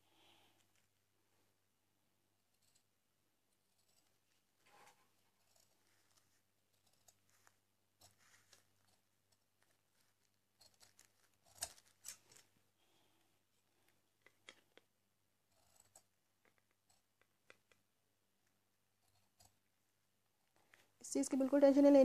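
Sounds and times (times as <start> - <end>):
scissors snipping fabric: 10.6 - 12.4, 15.5 - 17.7.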